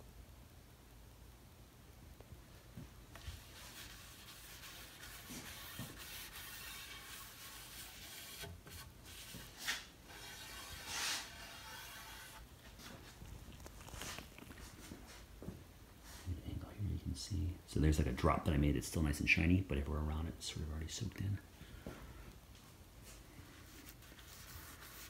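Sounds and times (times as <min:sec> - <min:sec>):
rag rubbing wood panel: 0:03.2 - 0:13.2.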